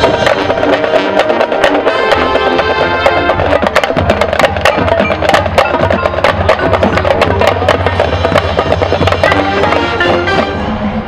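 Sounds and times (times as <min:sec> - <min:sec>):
brass chords: 0:00.0 - 0:11.0
drum line percussion strikes: 0:00.0 - 0:11.0.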